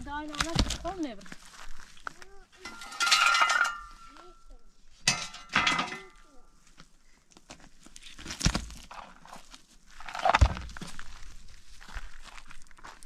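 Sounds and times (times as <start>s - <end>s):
stone scraping on gravel: 7.8s - 12.8s.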